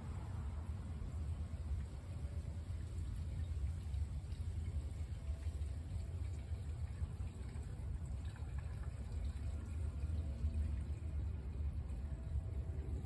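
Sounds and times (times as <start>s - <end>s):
gasoline pouring into fuel tank: 3.5s - 13.0s.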